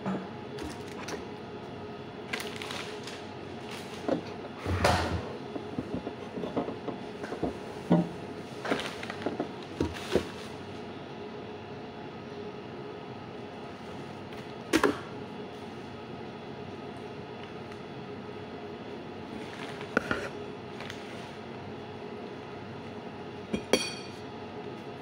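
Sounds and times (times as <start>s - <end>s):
steady background hum: 0.0s - 25.0s
pastry wrappers rustling: 2.3s - 4.1s, 8.5s - 10.8s, 19.3s - 20.0s.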